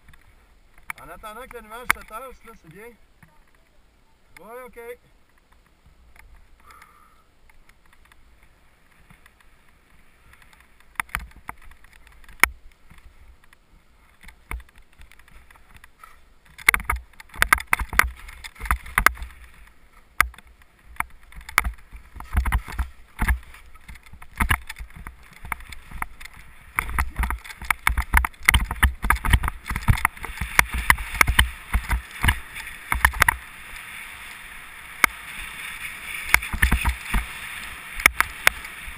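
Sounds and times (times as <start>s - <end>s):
skis scraping on snow: 8.2s - 16.3s, 18.0s - 38.9s.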